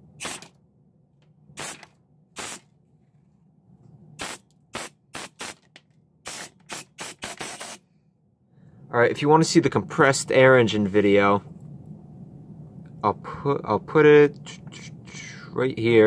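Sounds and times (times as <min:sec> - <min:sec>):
air blow gun hissing blasts: 0:00.2 - 0:00.5, 0:01.6 - 0:02.7, 0:04.2 - 0:07.8.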